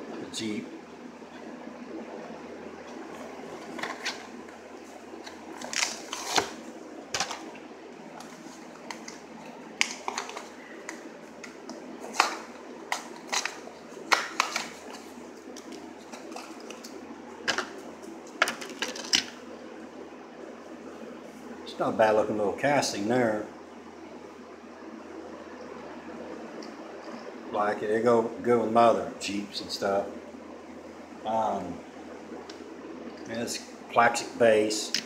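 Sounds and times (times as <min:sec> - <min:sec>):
plastic packaging crackling and tearing: 0:05.3 - 0:06.6.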